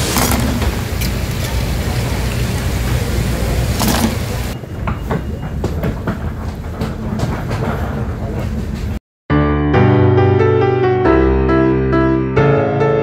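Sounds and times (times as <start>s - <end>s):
low traffic rumble: 0.0s - 9.0s.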